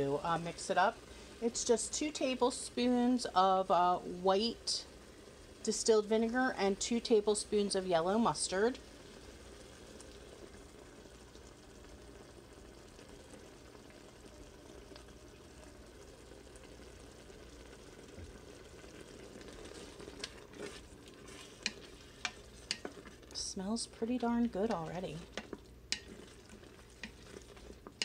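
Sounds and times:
sauce sizzling and bubbling: 0.0s - 28.0s
spoon scraping a pot: 19.6s - 23.2s.

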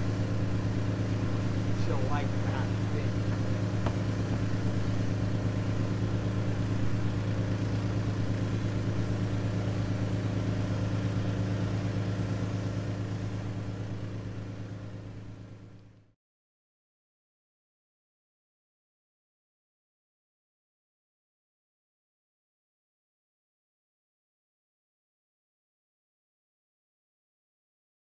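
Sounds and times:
boat engine idling: 0.0s - 16.0s.

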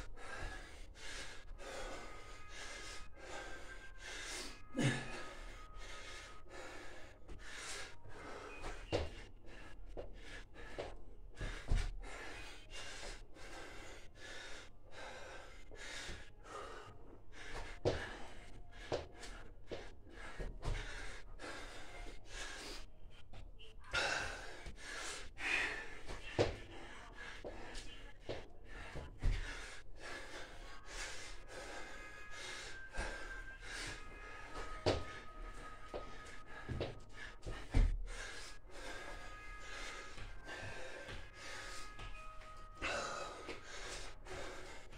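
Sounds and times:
man gasping and breathing hard: 0.0s - 22.9s, 23.9s - 44.9s.

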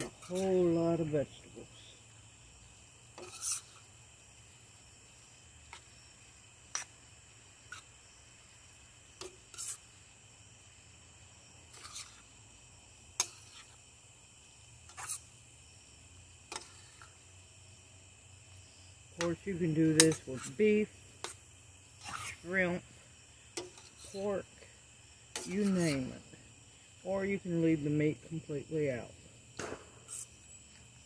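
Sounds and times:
metal spoon scraping a skillet: 0.0s - 1.1s, 3.0s - 4.0s, 6.7s - 10.1s, 11.6s - 12.4s, 13.1s - 13.8s, 14.8s - 15.4s, 16.4s - 17.3s, 19.2s - 26.4s, 30.0s - 30.4s
crickets chirring: 0.0s - 31.0s.

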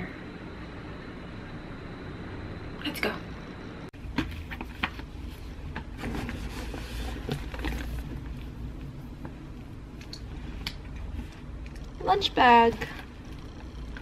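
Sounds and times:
steady low rumble: 0.0s - 4.0s.

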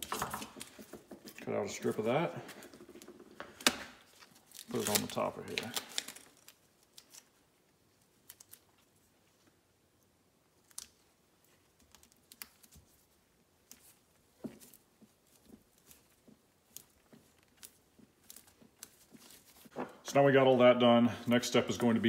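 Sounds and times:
foil crinkling and clicking: 3.0s - 8.9s, 10.6s - 19.8s.

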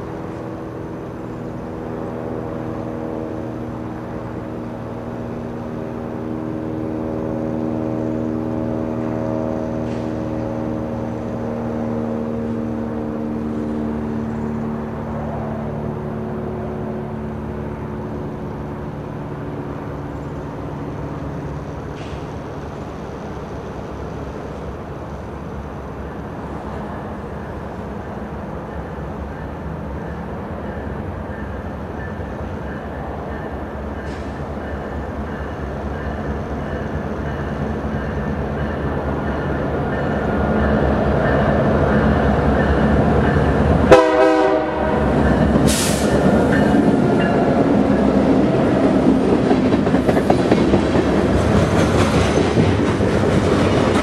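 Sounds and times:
diesel locomotive engine drone: 0.0s - 54.0s
train horn blast: 43.8s - 46.2s
wheel clatter on rails: 45.2s - 54.0s.

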